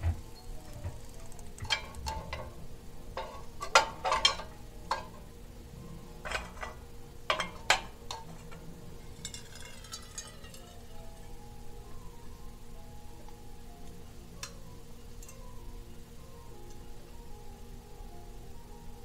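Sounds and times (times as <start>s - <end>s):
metal tongs clinking on metal: 1.2s - 2.6s, 3.2s - 5.3s, 6.2s - 10.9s, 14.4s - 15.5s.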